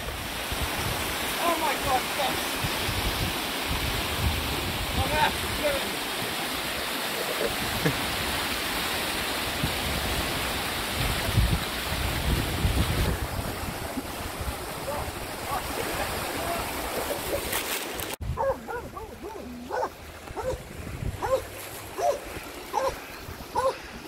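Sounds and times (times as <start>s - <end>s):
river rushing over rocks: 0.0s - 18.0s
wind buffeting microphone: 2.6s - 5.8s, 9.5s - 17.4s, 18.2s - 24.0s.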